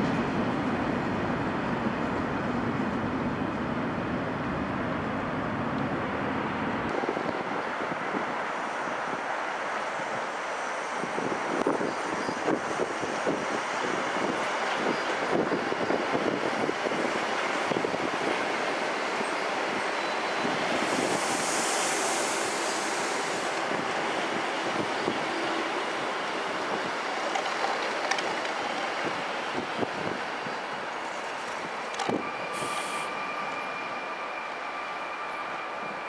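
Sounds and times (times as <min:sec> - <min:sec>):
train rumbling past: 0:00.0 - 0:36.0
high hiss: 0:20.7 - 0:23.7, 0:32.4 - 0:33.4
wheels clicking over rail joints: 0:26.8 - 0:28.9.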